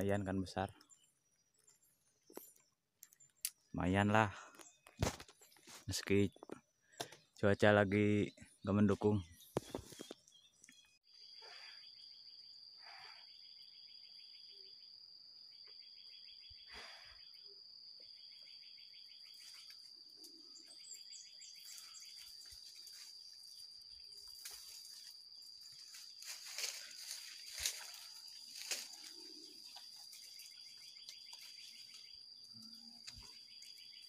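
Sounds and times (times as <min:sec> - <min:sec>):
insects high-pitched whine: 0:00.0 - 0:34.0
insect pulsing trill: 0:11.1 - 0:34.0
leaves rustling: 0:21.6 - 0:32.4.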